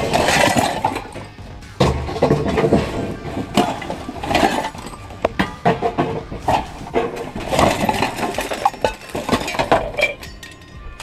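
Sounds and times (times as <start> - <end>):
objects clanking and clinking: 0.0 - 11.0
bags and cardboard rustling: 2.2 - 10.2.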